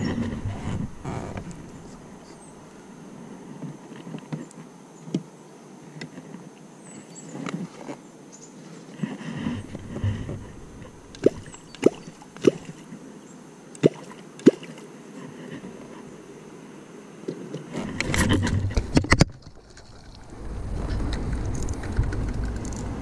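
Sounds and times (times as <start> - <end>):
fishing reel rustling and clicking: 20.8 - 23.0.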